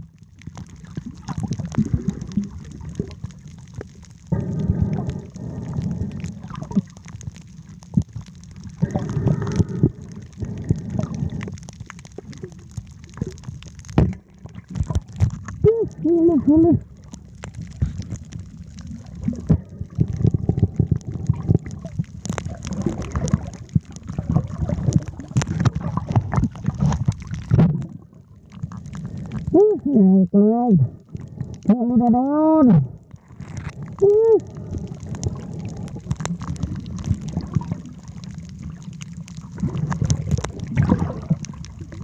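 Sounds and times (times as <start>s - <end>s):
clicks and crackles: 0.0s - 30.0s, 30.8s - 42.0s
muffled underwater sloshing: 0.0s - 42.0s
muffled voice-like sound: 15.6s - 16.8s.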